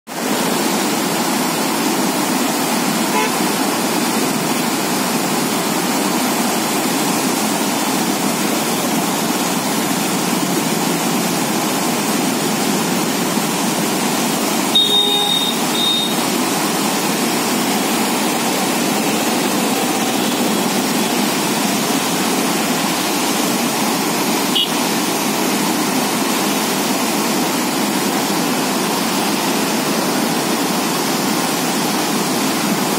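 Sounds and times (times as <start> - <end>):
water rushing through dam gates: 0.1 - 32.9.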